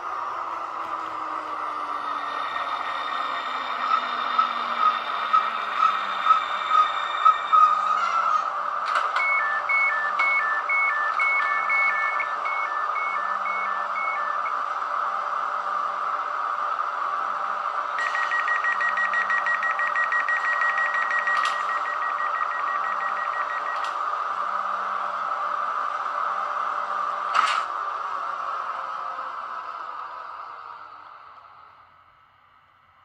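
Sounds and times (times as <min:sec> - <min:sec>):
rapidly pulsing single-tone beep: 0:09.2 - 0:14.5, 0:18.0 - 0:23.8
two-tone alternating beep: 0:09.2 - 0:14.5, 0:18.0 - 0:23.8.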